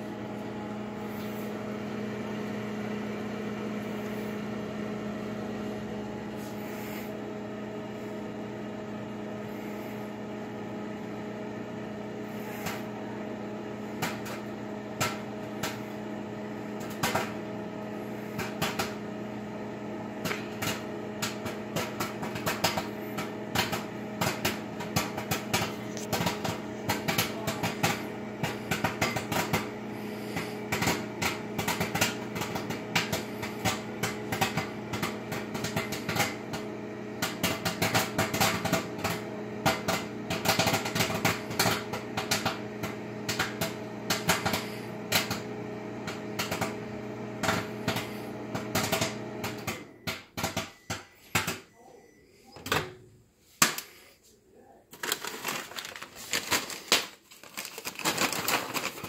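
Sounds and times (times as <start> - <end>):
microwave oven humming: 0.0 - 59.0
popcorn popping in paper bag: 12.2 - 51.7, 54.9 - 59.0.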